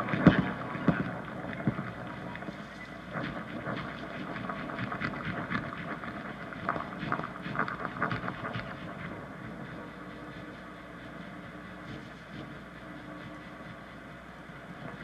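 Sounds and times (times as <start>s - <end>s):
improvised drums and guitar: 0.0s - 9.9s.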